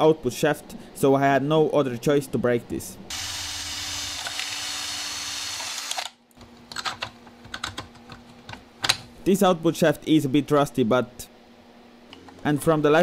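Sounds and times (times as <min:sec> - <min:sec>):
plastic parts clicking: 0:05.8 - 0:09.1.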